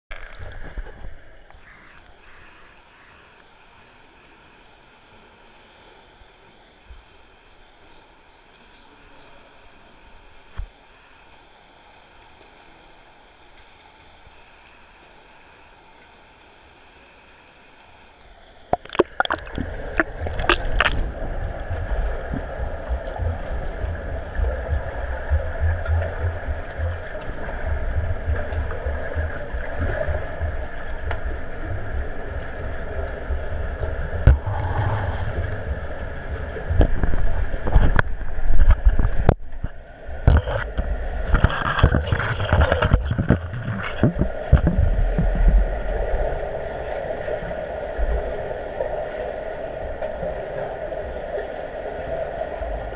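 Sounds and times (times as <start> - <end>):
low rumble of water: 0.1 - 52.9
steady underwater hum: 0.1 - 52.9
water bubbling: 18.7 - 46.8.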